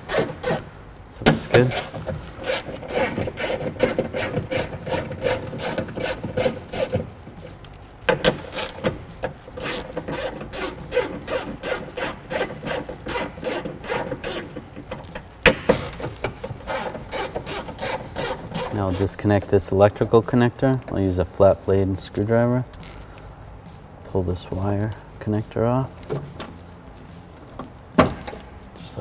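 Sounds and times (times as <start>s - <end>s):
socket ratchet clicking: 7.7s - 19.0s.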